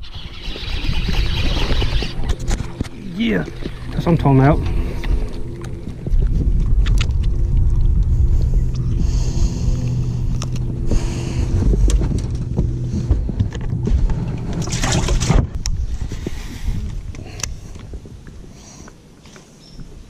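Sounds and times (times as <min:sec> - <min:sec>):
even tones: 0:00.0 - 0:15.8
boat motor humming: 0:00.0 - 0:18.1.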